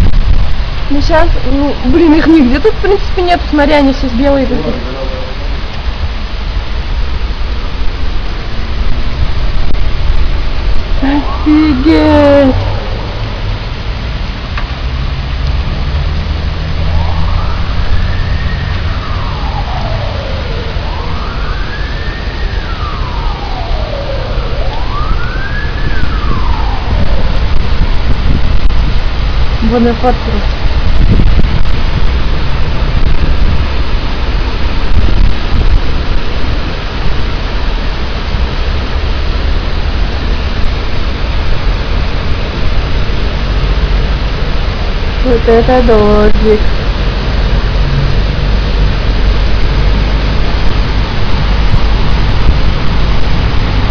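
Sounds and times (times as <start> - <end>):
deep rumble: 0.0 - 53.9
heavy rain pouring: 0.0 - 53.9
siren wailing up and down: 11.0 - 13.6, 16.6 - 28.6.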